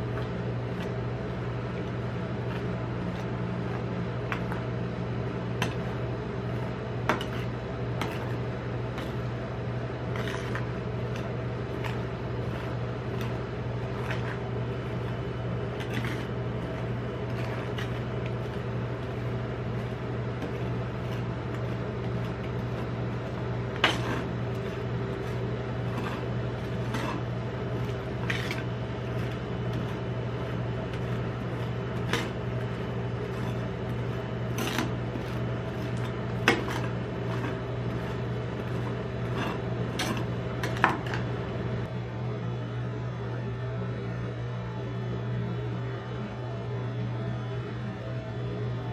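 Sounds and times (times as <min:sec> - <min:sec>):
steady low hum: 0:00.0 - 0:48.9
metal spatula scraping steel plate: 0:10.1 - 0:40.9.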